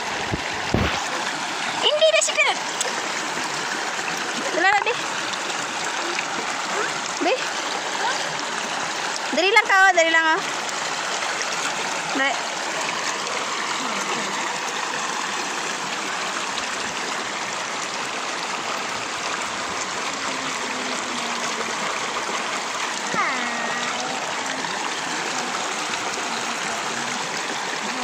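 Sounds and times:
river water rushing over stones: 0.0 - 28.0
person calling out: 23.0 - 24.6.

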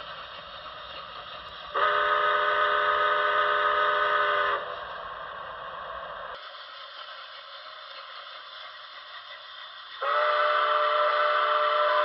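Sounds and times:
steam whistle chime blast: 1.8 - 4.6, 10.0 - 12.0.

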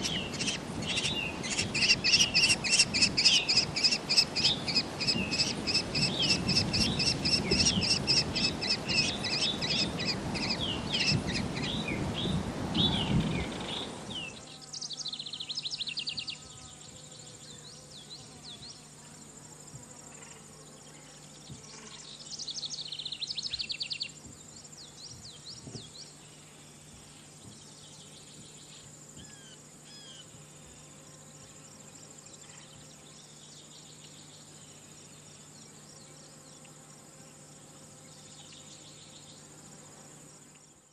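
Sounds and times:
kestrel chick calling: 0.0 - 11.8
rapid bird calls: 0.0 - 12.0
insects trilling: 0.0 - 40.9.

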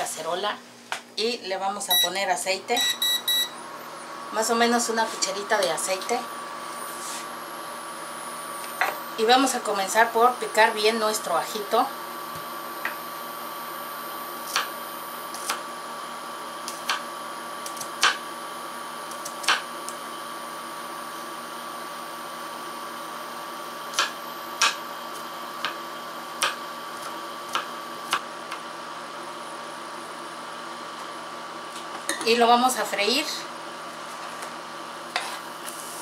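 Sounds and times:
electric hob hum and whine: 0.0 - 36.0.

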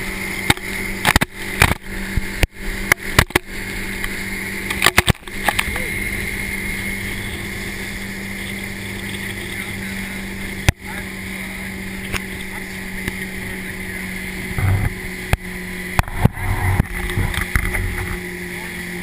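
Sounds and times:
motorboat engine running: 0.0 - 19.0
low bumps: 4.1 - 18.4.

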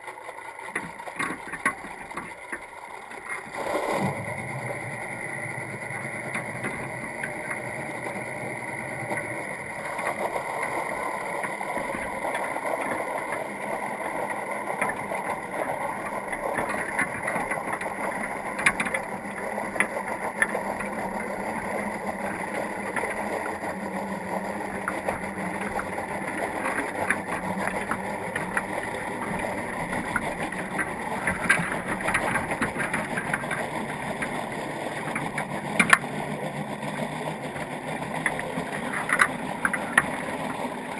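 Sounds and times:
sharp underwater clicks: 37.5 - 40.6.

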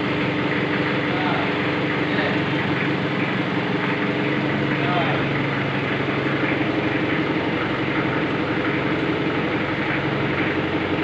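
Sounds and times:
forklift engine idling: 0.0 - 11.0.

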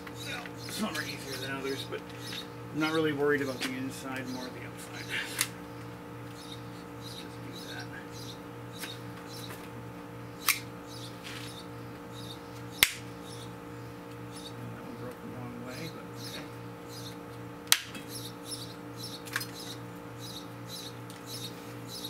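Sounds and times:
steady low hum: 0.0 - 22.0
shims snapping: 12.8 - 13.0.

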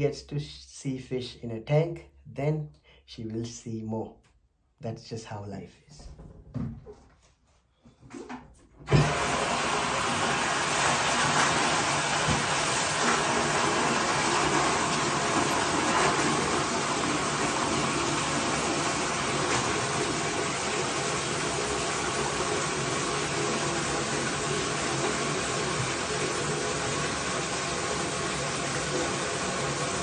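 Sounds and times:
bathtub tap running: 8.1 - 30.0.

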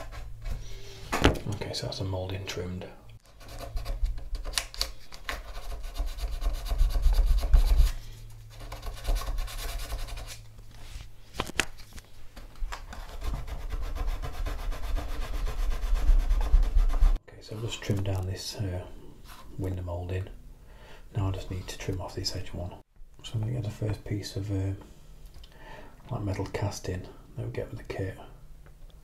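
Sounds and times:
sanding wood by hand: 5.4 - 7.9, 8.5 - 10.4, 13.0 - 17.2.

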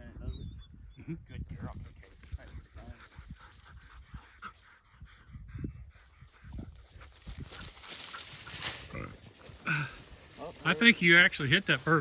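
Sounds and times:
dry grass rustling: 1.6 - 5.0, 6.0 - 12.0
dog panting: 2.4 - 8.5.

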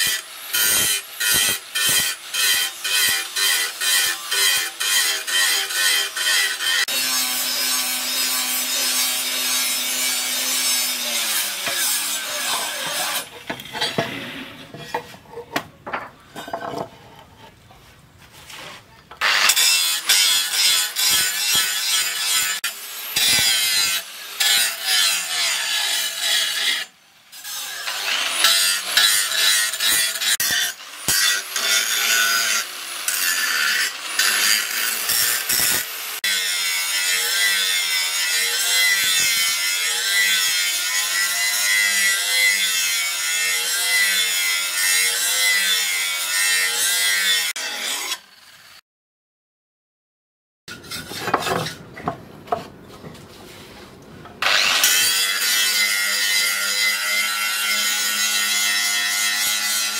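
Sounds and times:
angle grinder grinding metal: 0.0 - 17.4, 19.1 - 48.8, 54.4 - 59.9.

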